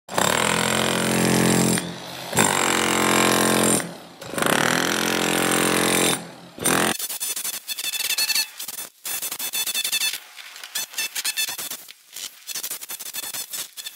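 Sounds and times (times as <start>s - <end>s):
demolition hammer chipping concrete: 0.1s - 7.0s.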